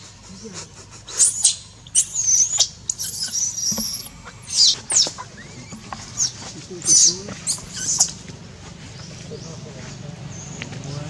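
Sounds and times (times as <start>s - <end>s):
baby monkey distress screams: 1.1s - 8.2s.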